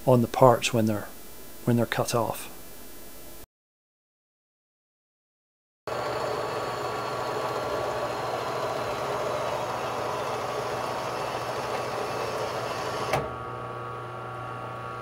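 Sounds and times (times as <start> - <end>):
bandsaw cutting metal: 5.9 - 13.2.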